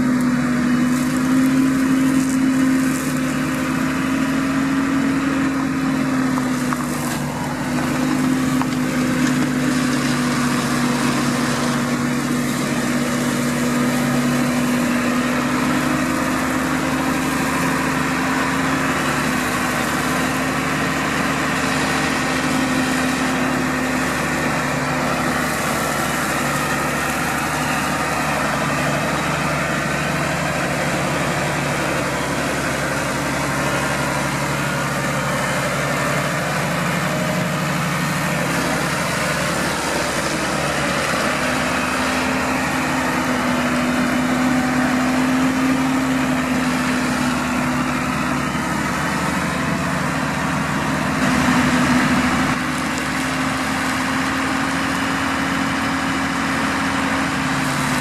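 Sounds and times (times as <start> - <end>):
flail hedge cutter working: 0.0 - 58.0
tractor diesel engine running: 0.0 - 58.0.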